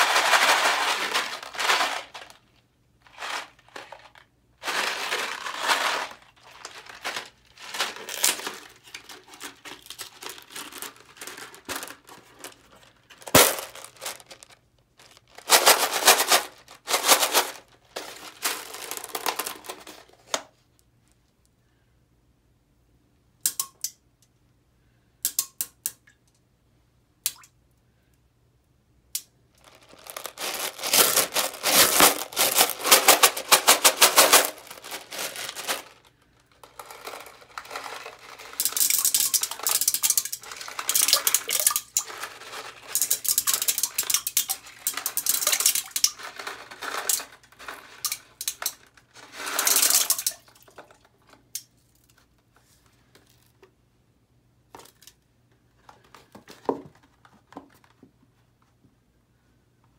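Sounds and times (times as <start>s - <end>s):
candies clicking and splashing: 3.1s - 17.3s, 29.2s - 52.1s.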